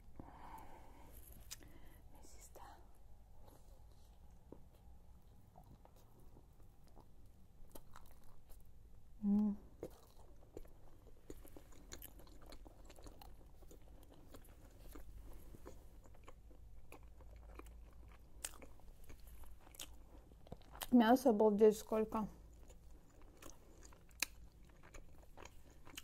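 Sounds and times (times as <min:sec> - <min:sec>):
person chewing food: 0:00.4 - 0:01.9, 0:03.3 - 0:08.9, 0:09.7 - 0:20.9, 0:22.4 - 0:26.0
person humming: 0:09.2 - 0:09.7.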